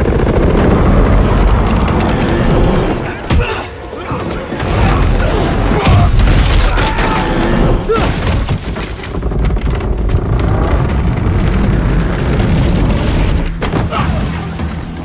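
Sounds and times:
deep steady rumble: 0.0 - 3.6, 7.3 - 13.6
fight crashes and impacts: 4.6 - 9.3.

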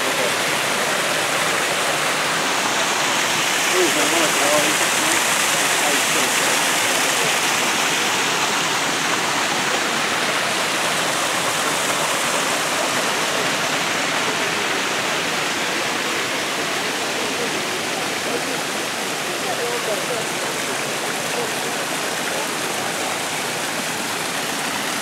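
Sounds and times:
water cascade pouring into pond: 0.0 - 25.0.

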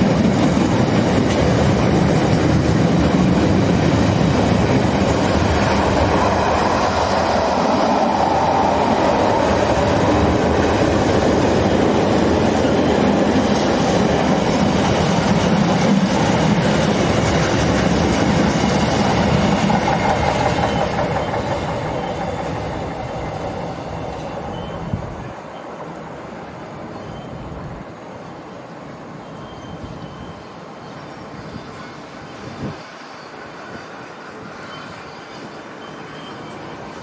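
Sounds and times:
freight train wheels clacking: 0.0 - 26.2.

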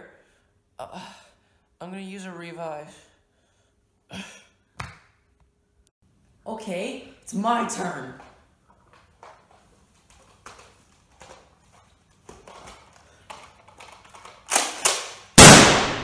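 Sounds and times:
taps and shuffles of movement: 8.0 - 14.5
loud gunshot-like blasts: 15.4 - 16.0.

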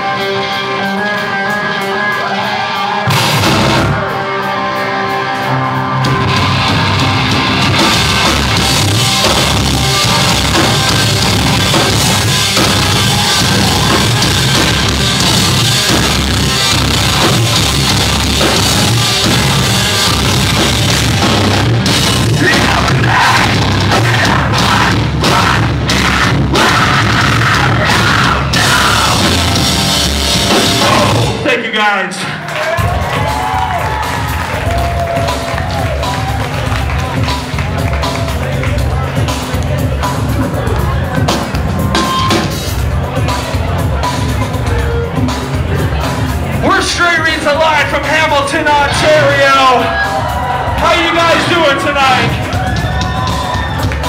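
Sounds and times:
distorted electric guitar chords: 0.0 - 31.7, 34.3 - 54.0
heavy metal band playing: 0.0 - 54.0
vocalist yelling: 22.3 - 29.5.

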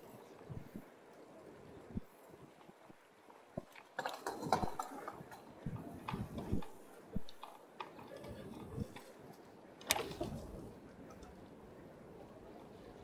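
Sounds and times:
bicycle rattling and clicking: 3.6 - 11.3.

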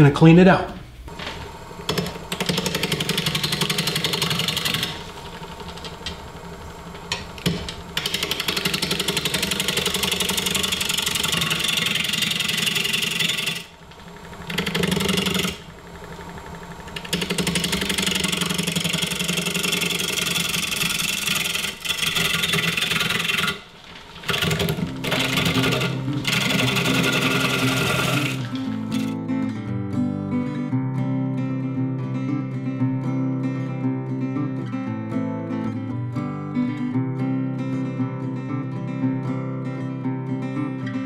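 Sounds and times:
turning tool cutting wood: 1.1 - 29.2
wood lathe spinning: 1.1 - 29.2.

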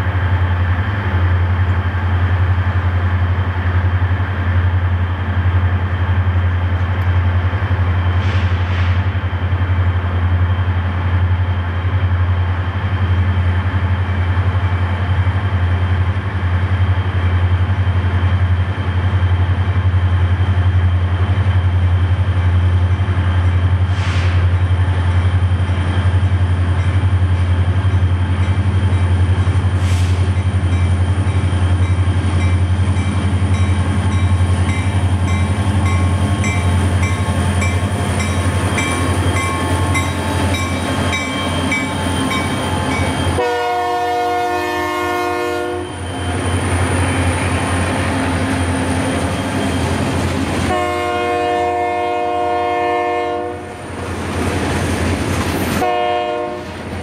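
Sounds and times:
diesel locomotive engine rumble: 0.0 - 57.0
locomotive horn: 43.4 - 46.0, 50.6 - 53.8, 55.8 - 56.8.

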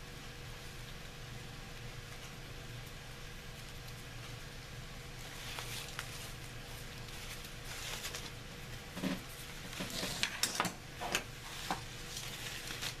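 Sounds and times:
ribbon rustling: 5.2 - 8.4, 11.4 - 13.0.

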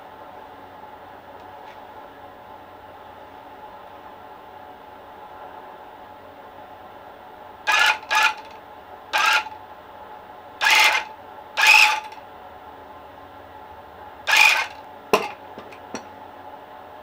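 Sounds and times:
tufting gun buzzing and clattering: 7.7 - 8.6, 9.2 - 9.6, 10.6 - 12.2, 14.3 - 16.1.

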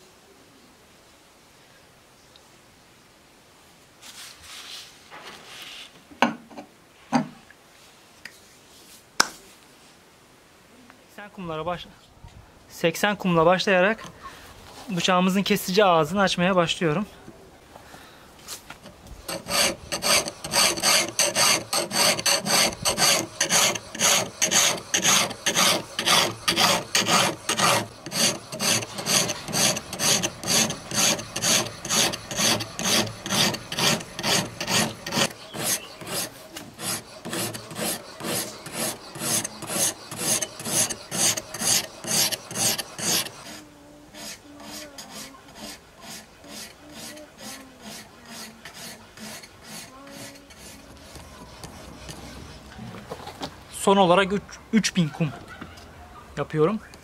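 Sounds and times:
sharpening stone scraping knife blade: 19.3 - 43.6.

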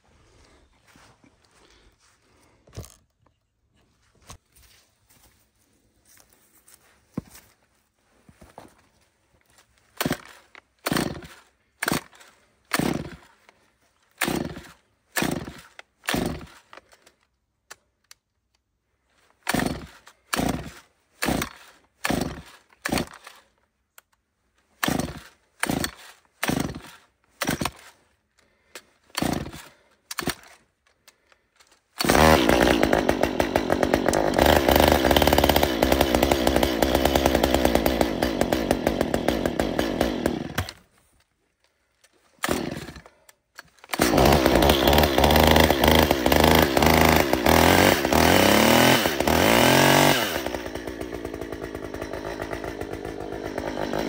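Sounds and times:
chainsaw engine running: 10.0 - 13.3, 14.2 - 16.7, 19.5 - 23.4, 24.8 - 27.9, 29.2 - 30.6, 32.0 - 40.9, 42.4 - 43.2, 43.9 - 54.0.

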